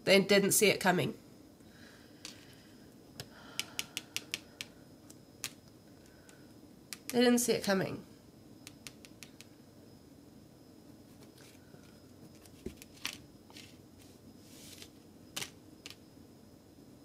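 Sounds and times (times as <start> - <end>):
cards ticking: 3.2 - 5.6, 8.7 - 9.5
cards sliding swishes: 12.4 - 15.0.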